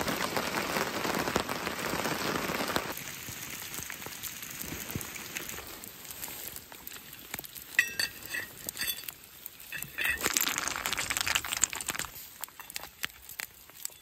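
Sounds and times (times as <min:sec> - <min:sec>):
boiling pot hissing: 0:00.0 - 0:14.0
metal lid clinking on pot: 0:07.8 - 0:09.1, 0:09.7 - 0:10.4.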